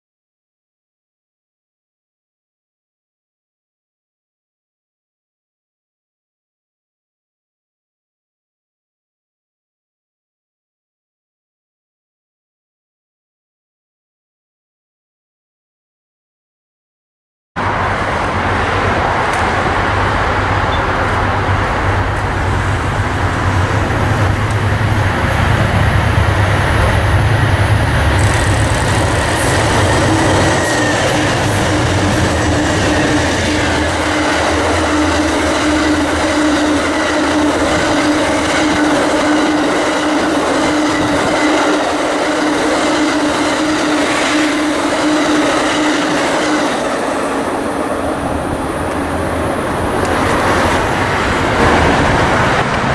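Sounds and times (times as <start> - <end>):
diesel locomotive rumble: 17.6 - 39.4, 46.9 - 52.9
steady train hum: 17.6 - 52.9
train wheels clicking on rail joints: 20.6 - 42.8.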